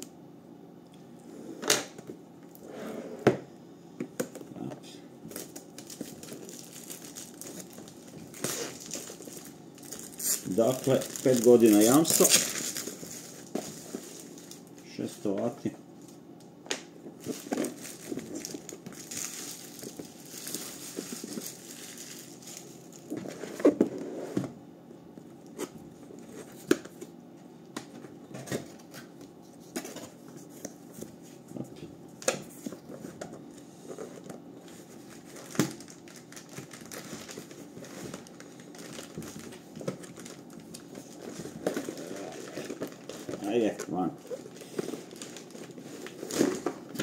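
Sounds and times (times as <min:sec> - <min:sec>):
cardboard packaging rustling: 0:05.3 - 0:15.4, 0:17.1 - 0:24.0, 0:33.9 - 0:47.0.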